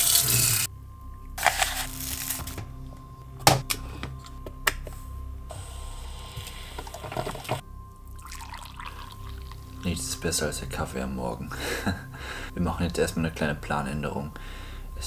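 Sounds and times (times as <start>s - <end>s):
coffee maker brewing hiss: 0.0s - 0.7s, 5.5s - 9.8s.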